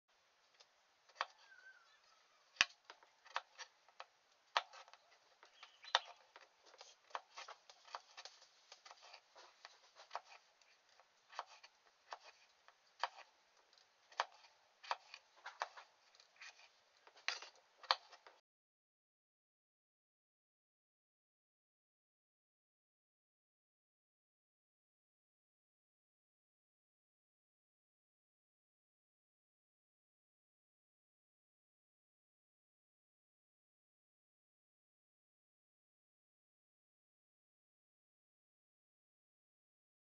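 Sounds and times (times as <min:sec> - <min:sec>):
knife cutting potatoes on board: 0:02.5 - 0:18.4.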